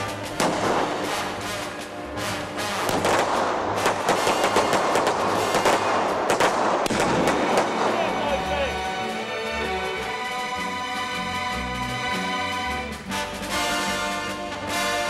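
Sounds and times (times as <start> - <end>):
music: 0.0 - 15.0
revolver gunshots: 0.4 - 1.7, 2.8 - 8.4.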